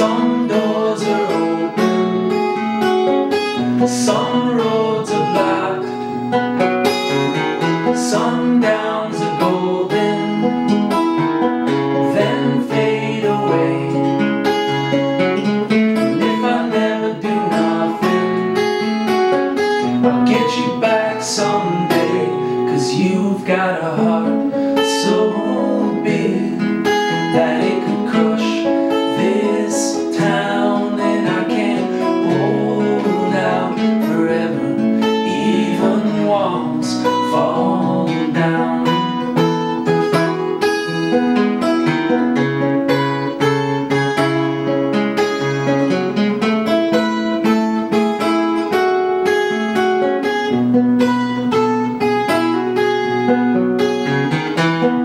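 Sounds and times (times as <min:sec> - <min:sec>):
man singing: 0:00.0 - 0:02.5, 0:03.6 - 0:15.0, 0:16.0 - 0:19.0, 0:19.8 - 0:39.9
acoustic guitar strumming: 0:00.0 - 0:55.0.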